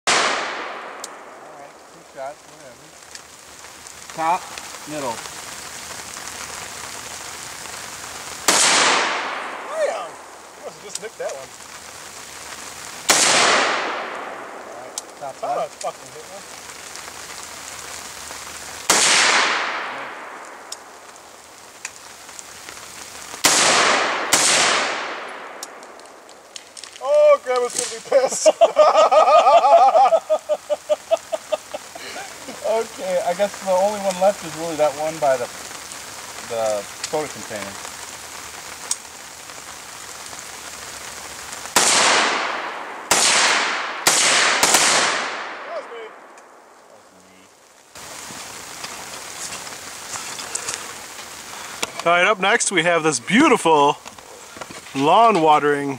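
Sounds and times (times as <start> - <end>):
rifle shots with echo: 0.1 - 1.4, 8.5 - 9.7, 13.1 - 14.7, 18.9 - 20.6, 23.4 - 25.8, 41.8 - 46.3
faint steady hiss: 0.1 - 55.9
faint ticks: 38.8 - 39.0.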